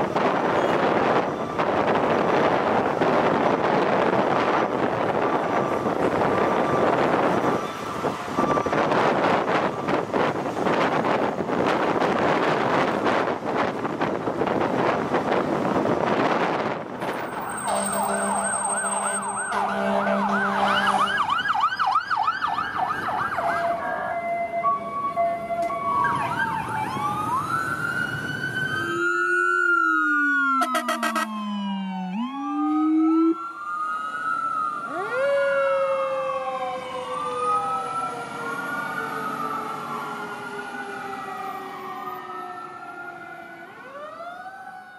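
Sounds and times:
sirens wailing: 0.0s - 44.9s
deep siren tone sweeping: 17.0s - 44.9s
electronic siren yelp: 17.1s - 44.9s
horn blast: 17.5s - 21.2s, 30.6s - 31.3s.

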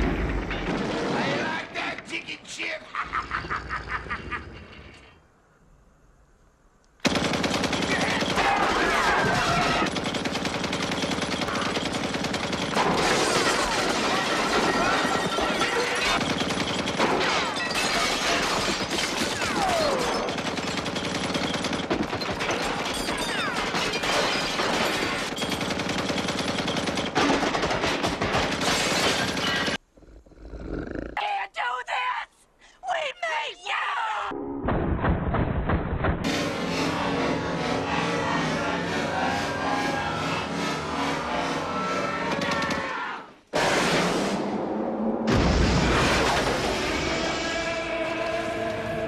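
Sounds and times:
machine gun automatic fire: 7.0s - 29.8s.

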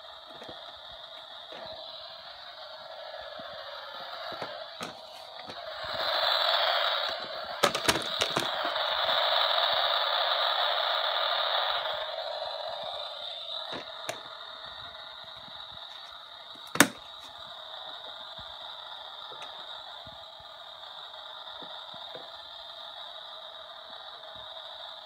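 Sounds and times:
toy vacuum whirring hiss: 0.0s - 25.0s
plastic toy clicks: 3.3s - 17.4s.

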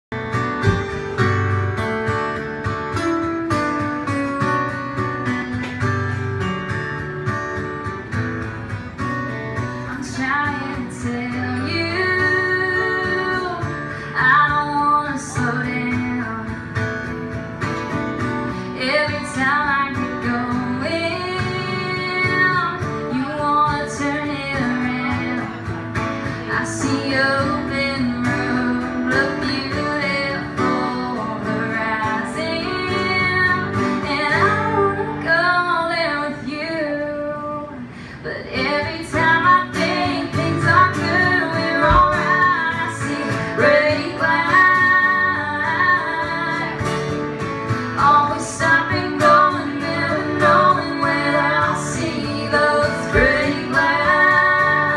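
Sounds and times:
acoustic guitars strumming: 0.1s - 54.9s
person singing: 48.0s - 54.9s.

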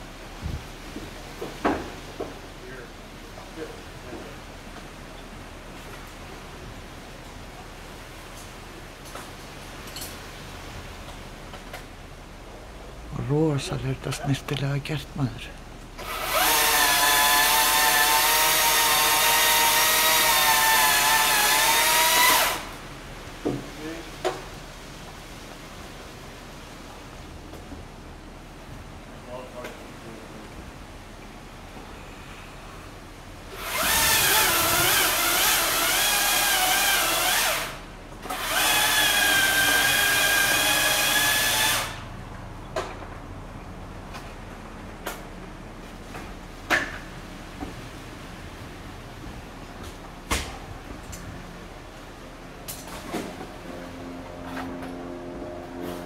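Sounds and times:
chainsaw cutting tree: 16.0s - 22.8s, 33.5s - 42.1s.

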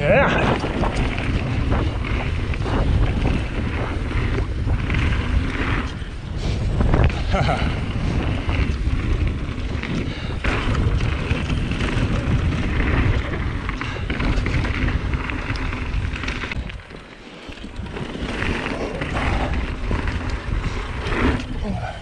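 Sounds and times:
bike tyres clattering: 0.0s - 22.0s
wind buffeting microphone: 0.0s - 22.0s.

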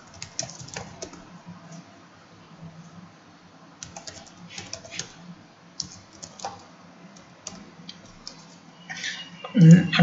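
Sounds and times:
keyboard keys clicking: 0.0s - 1.2s, 5.8s - 6.6s.

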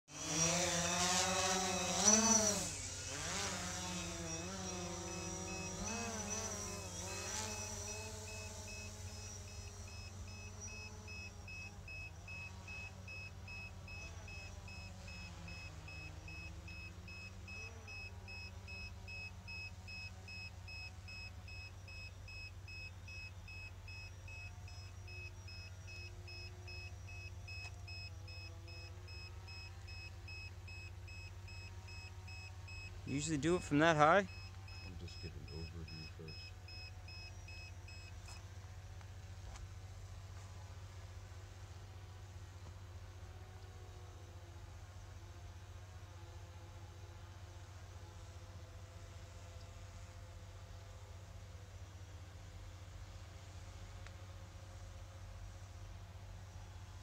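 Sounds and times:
faint high pulsing tone: 0.1s - 38.9s
drone propellers whining: 0.1s - 39.7s.

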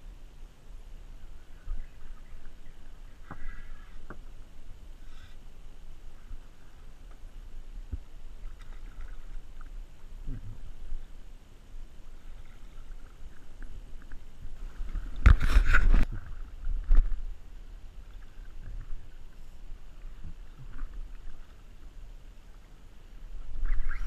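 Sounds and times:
wind: 0.0s - 24.0s
water lapping: 6.0s - 17.4s
water splashing: 7.9s - 11.3s, 12.1s - 17.4s.

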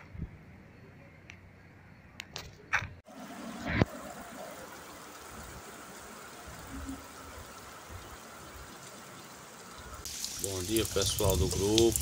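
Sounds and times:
heavy rain on pavement: 3.1s - 12.0s.

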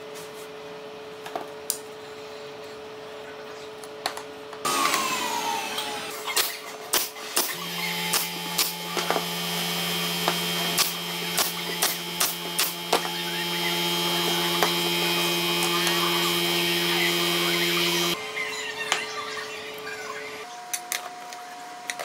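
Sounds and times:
nail gun firing: 6.4s - 9.2s, 10.2s - 13.2s
low motor hum: 7.5s - 18.2s.

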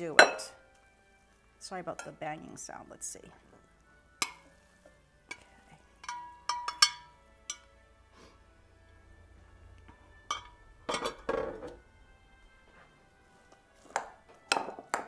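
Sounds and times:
spoon and glass dishes clinking: 0.1s - 0.6s, 5.3s - 7.7s, 10.3s - 11.8s.

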